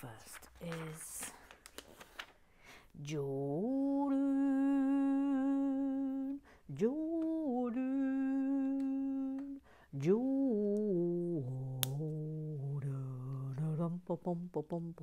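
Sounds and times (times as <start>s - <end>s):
man singing wordless tune: 3.0s - 15.0s.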